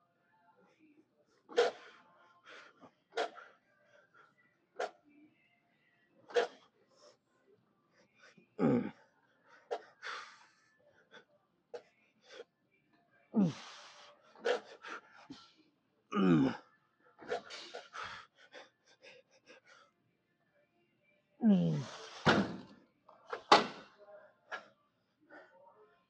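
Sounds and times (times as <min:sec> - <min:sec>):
man groaning with effort: 0:08.6 - 0:08.9, 0:13.4 - 0:13.6, 0:16.2 - 0:16.6, 0:21.4 - 0:22.0.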